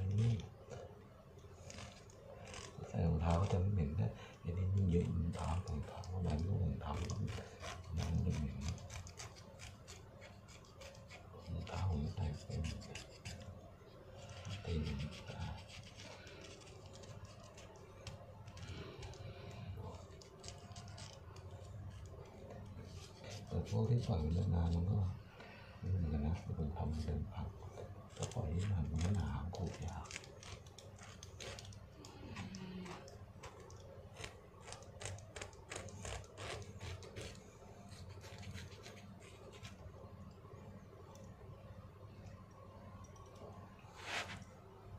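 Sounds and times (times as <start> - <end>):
blade scraping dead skin: 1.6 - 3.7, 4.9 - 13.5, 14.2 - 24.8, 28.1 - 39.0.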